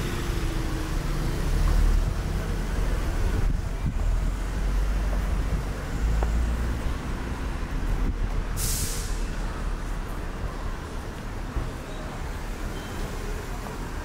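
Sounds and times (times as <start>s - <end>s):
traffic rumble: 0.0s - 14.0s
short sharp hiss: 8.6s - 9.3s.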